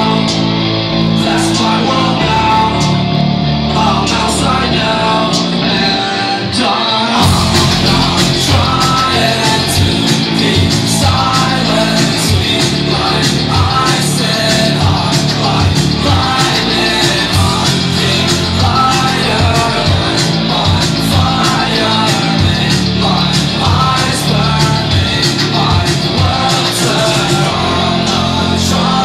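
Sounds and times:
person singing: 0.0s - 29.0s
drums beat: 7.2s - 29.0s
live rock band playing: 7.2s - 29.0s.

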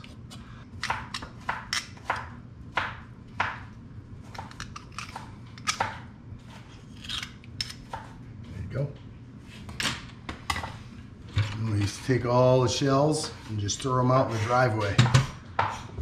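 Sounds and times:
knife clicking and scraping shell: 4.5s - 5.8s, 6.9s - 7.8s.

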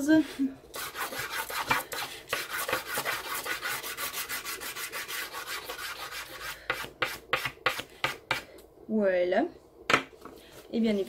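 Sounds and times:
pastel stick scratching on paper: 0.8s - 7.8s.

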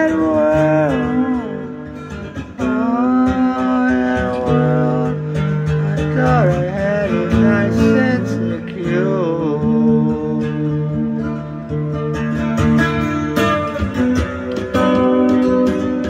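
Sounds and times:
person singing: 0.0s - 11.0s
plucked acoustic guitar: 0.0s - 16.0s.

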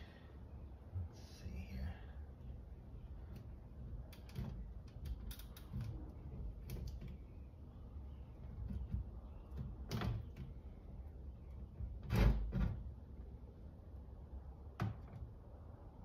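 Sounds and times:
clicks and creaks of plastic: 3.3s - 7.3s.

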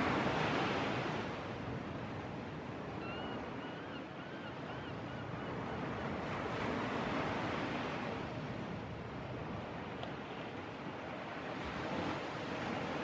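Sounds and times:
waves breaking: 0.0s - 1.5s.

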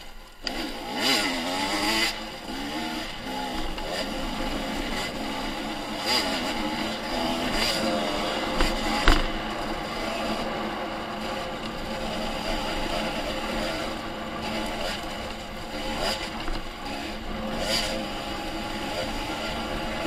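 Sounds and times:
dirt bike engine revving: 0.0s - 20.0s.

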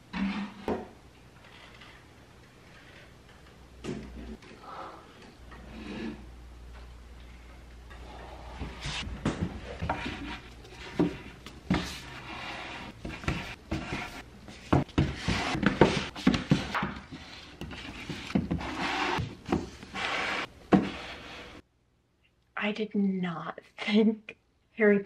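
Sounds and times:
books scraping and rustling: 8.4s - 21.6s.

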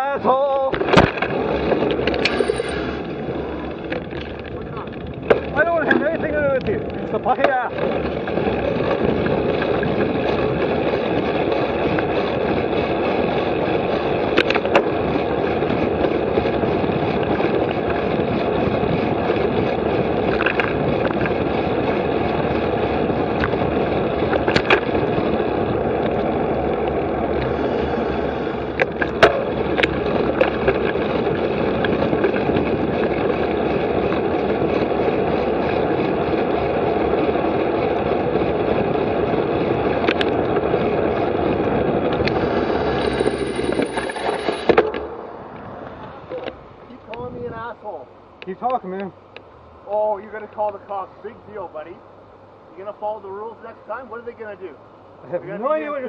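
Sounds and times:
tyre and road noise: 0.0s - 56.0s
bike clicks: 0.7s - 27.9s
wind on microphone: 0.7s - 46.6s.

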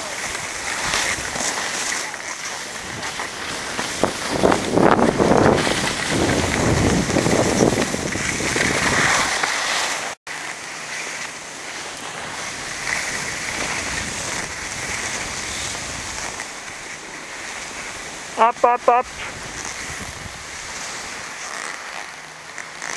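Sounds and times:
skis sliding over snow: 0.0s - 22.9s
wind buffeting microphone: 2.8s - 9.3s, 12.6s - 16.8s, 19.1s - 20.7s.

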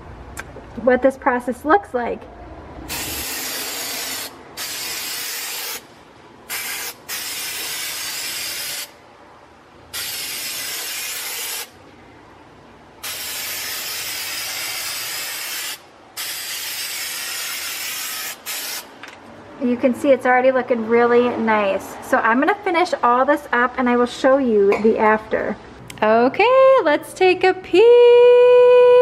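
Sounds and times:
spray paint can hissing: 2.9s - 5.9s, 6.5s - 9.0s, 9.9s - 11.8s, 13.0s - 18.9s.

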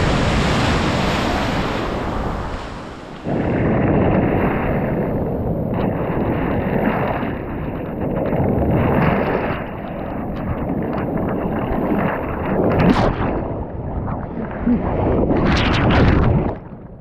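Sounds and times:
surf washing over pebbles: 0.0s - 13.5s.

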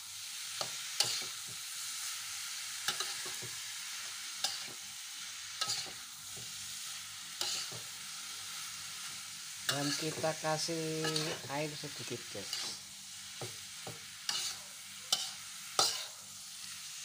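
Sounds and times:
food sizzling in a wok: 0.0s - 17.0s
metal spatula scraping a pan: 0.6s - 1.4s, 4.4s - 4.8s, 5.5s - 6.5s, 7.3s - 7.9s, 9.6s - 16.2s.

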